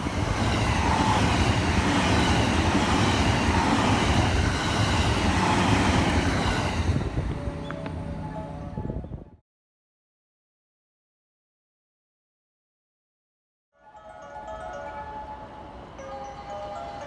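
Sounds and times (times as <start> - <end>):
train wheels rumbling on rails: 0.0 - 8.5
train motors humming: 0.0 - 8.8, 14.2 - 17.0.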